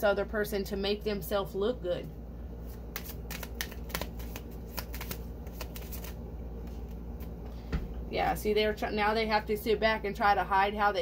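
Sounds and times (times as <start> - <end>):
cards being shuffled: 2.6 - 7.4.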